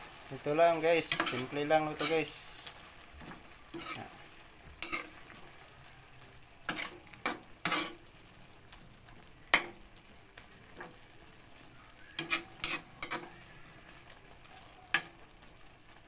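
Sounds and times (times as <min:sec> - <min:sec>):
vegetables sizzling: 0:00.0 - 0:16.0
metal spatula scraping a wok: 0:00.8 - 0:08.2, 0:10.7 - 0:14.2.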